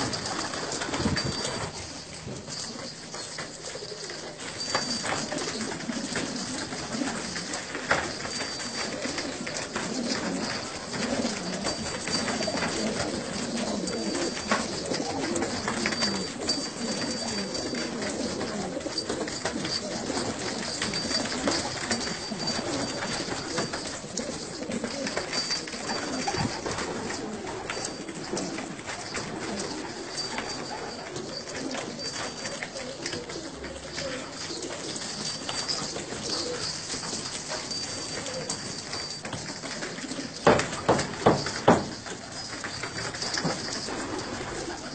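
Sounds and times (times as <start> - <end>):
pigeons cooing: 0.0 - 44.9.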